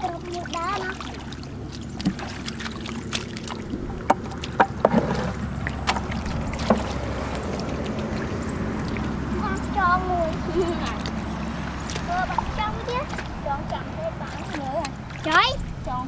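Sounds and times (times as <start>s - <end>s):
bare feet squelching in mud: 0.0s - 15.9s
steady low hum: 0.0s - 16.0s
bucket knocks and splashes: 0.4s - 8.3s.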